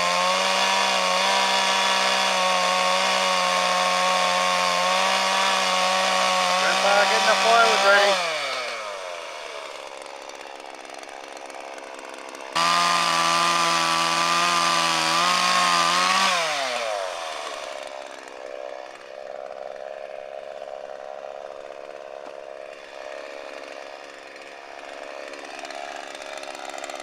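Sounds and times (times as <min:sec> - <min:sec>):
electric chainsaw cutting branch: 0:00.0 - 0:27.0.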